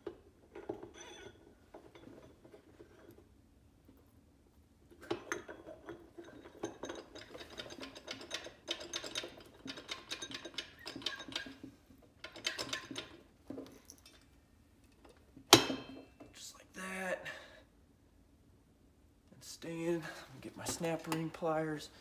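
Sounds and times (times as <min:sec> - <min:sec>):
metal parts clinking and rattling: 0:05.0 - 0:16.3.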